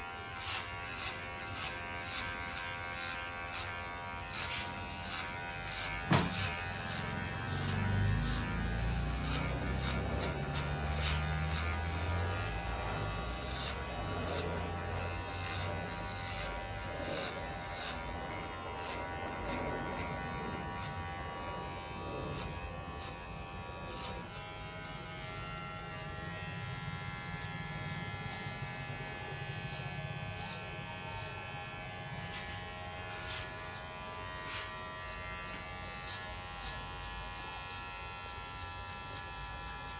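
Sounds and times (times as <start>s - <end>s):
electric hair clipper buzzing: 0.0s - 39.9s.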